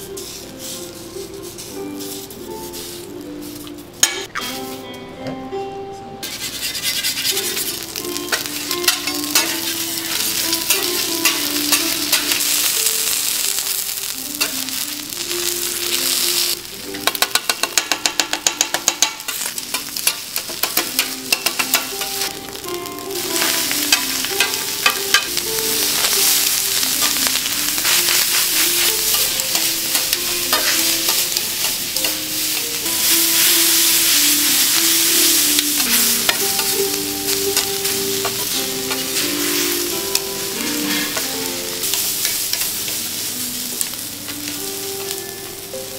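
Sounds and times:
food sizzling on a griddle: 0.0s - 4.1s, 6.2s - 45.9s
metal spatulas scraping and clacking: 0.2s - 4.8s, 6.2s - 12.6s, 16.9s - 22.3s, 23.4s - 33.5s, 35.6s - 36.8s, 37.5s - 42.9s.

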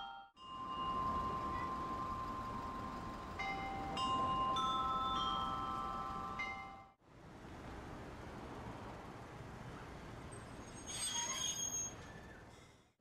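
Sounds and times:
clock bells chiming melody: 0.0s - 7.0s.

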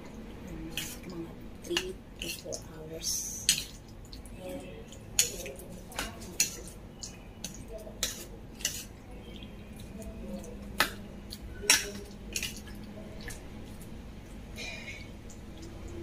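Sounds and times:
spoon stirring sticky marinade: 0.1s - 16.0s
metal spoon clinking against bowl: 11.6s - 12.6s.

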